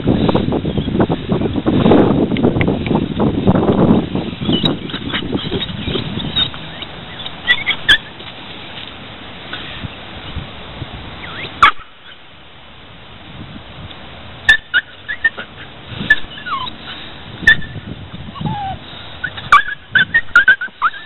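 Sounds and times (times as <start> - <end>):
dog whining: 4.4 - 8.1, 14.5 - 16.8, 17.4 - 21.0
dog yelping: 4.4 - 8.2, 11.3 - 12.2, 14.5 - 16.8, 17.4 - 21.0.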